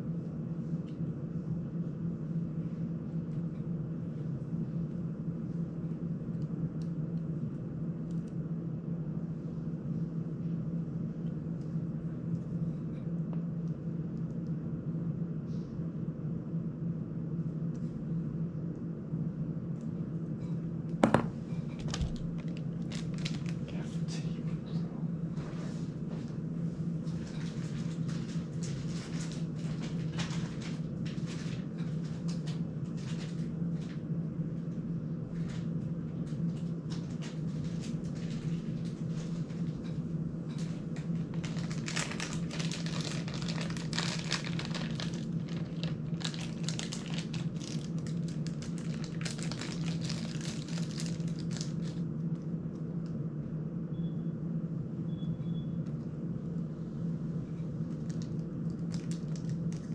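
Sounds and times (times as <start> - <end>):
steady low hum: 0.0 - 59.9
hands rustling packaging: 21.8 - 23.8, 40.6 - 52.0, 57.9 - 59.9.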